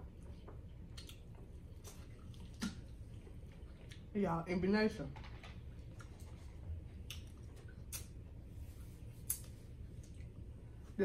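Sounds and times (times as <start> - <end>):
steady low hum: 0.0 - 11.0
eating clicks and smacks: 0.3 - 4.1, 5.2 - 8.3.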